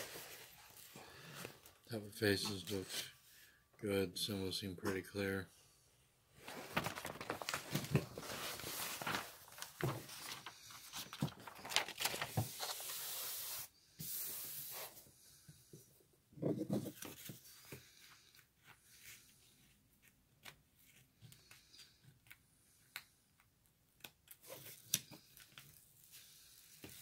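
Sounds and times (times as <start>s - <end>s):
canvas rustling and crinkling: 6.4s - 12.7s.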